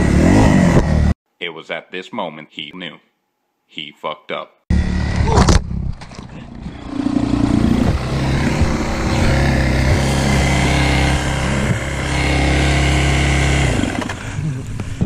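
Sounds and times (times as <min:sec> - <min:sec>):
dirt bike engine running: 0:00.0 - 0:01.1, 0:04.7 - 0:15.0.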